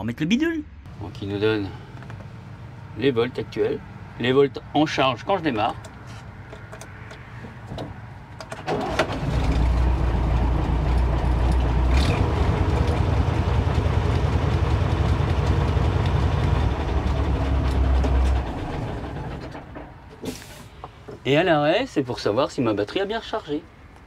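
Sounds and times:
diesel engine idling: 0.9 - 6.6, 8.1 - 21.1
truck starter cranking: 8.4 - 13.3.

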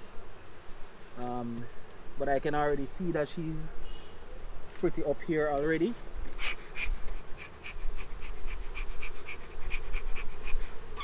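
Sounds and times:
honeybees buzzing: 0.0 - 11.0
bellows pumping hissing puffs: 6.1 - 11.0.

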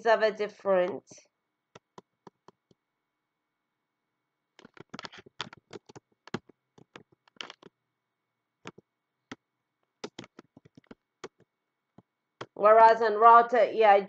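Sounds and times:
computer keyboard typing: 4.6 - 7.7, 10.0 - 11.5.

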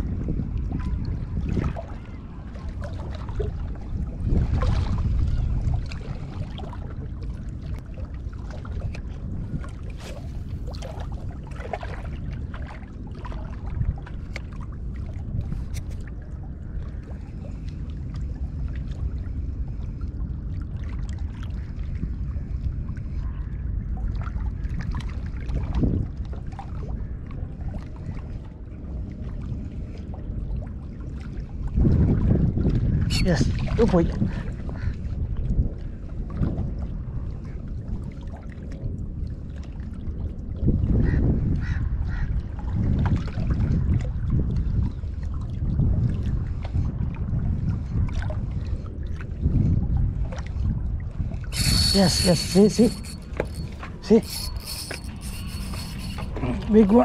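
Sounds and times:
wind rumbling on microphone: 0.0 - 57.0
fishing rod and reel clicks: 51.5 - 56.6.

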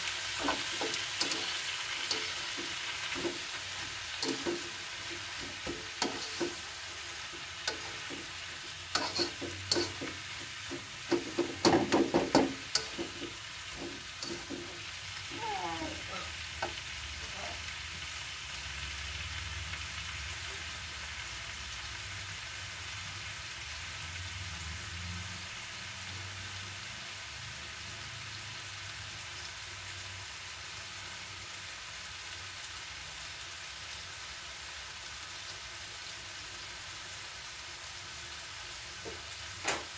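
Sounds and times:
greens sizzling in a wok: 0.0 - 39.9
spatula scraping a wok: 0.1 - 15.2.

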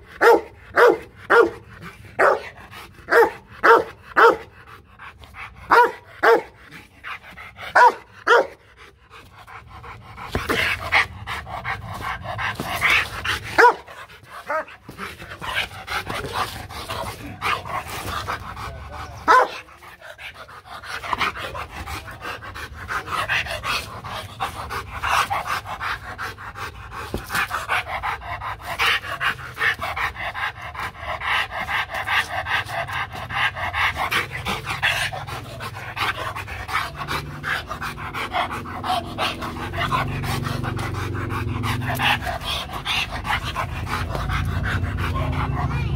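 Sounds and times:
dog panting hard: 0.0 - 45.9
dog barking: 0.2 - 1.6, 2.2 - 2.5, 3.1 - 4.5, 5.7 - 6.6, 7.8 - 8.6, 13.6 - 13.9, 19.3 - 19.6.

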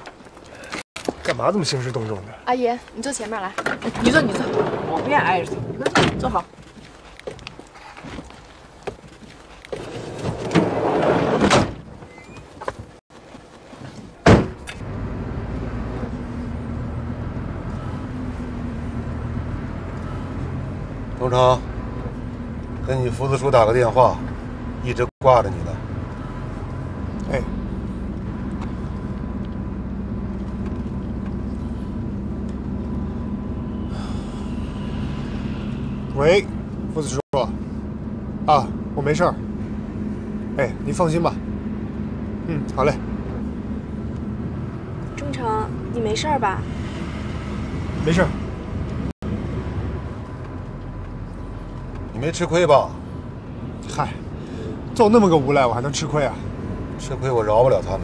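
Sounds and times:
van engine and road noise: 0.0 - 58.0
sliding door rolling: 3.9 - 5.8, 9.8 - 12.4
car door slamming: 14.2 - 14.6.

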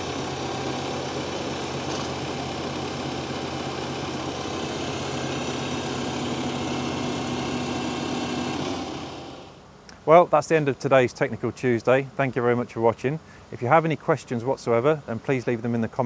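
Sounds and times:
stump grinder engine running: 0.0 - 9.6.

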